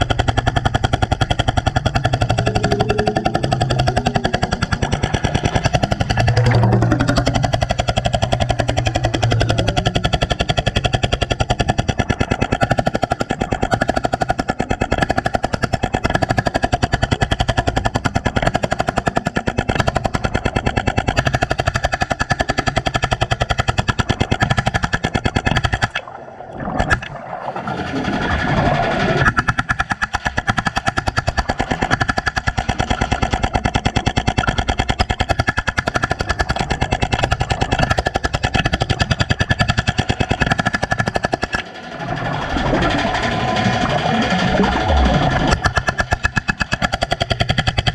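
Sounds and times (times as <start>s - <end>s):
jackhammer hammering underwater: 0.0s - 47.9s.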